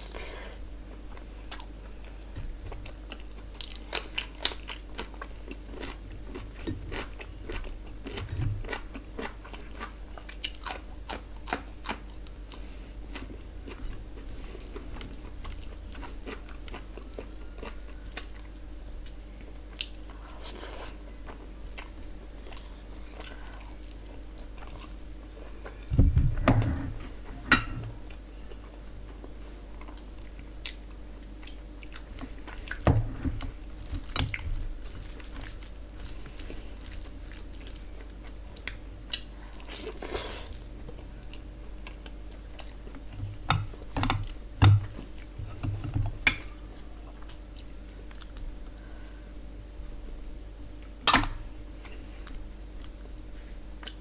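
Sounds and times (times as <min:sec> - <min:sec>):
moist chewing: 0:33.4 - 0:43.2.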